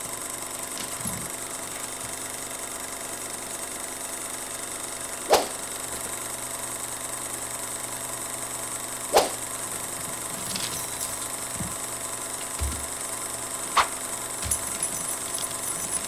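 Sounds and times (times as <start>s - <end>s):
machine hum: 5.0s - 16.0s.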